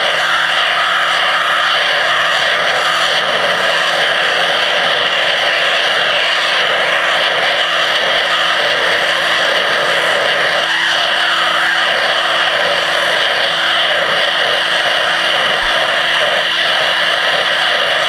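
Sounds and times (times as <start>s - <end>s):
pressure washer jet hissing: 0.0s - 18.0s.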